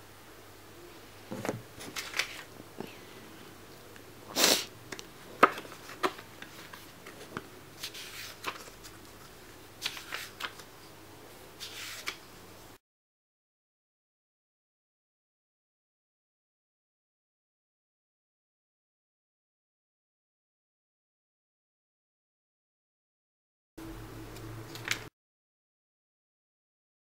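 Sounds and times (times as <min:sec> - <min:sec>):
book pages rustling: 0:01.3 - 0:02.5, 0:05.4 - 0:10.7, 0:11.6 - 0:12.2.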